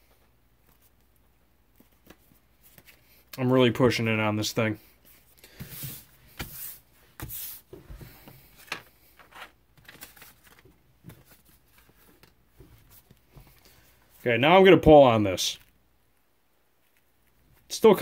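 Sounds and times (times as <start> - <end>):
paper packaging rustling: 8.4 - 13.2.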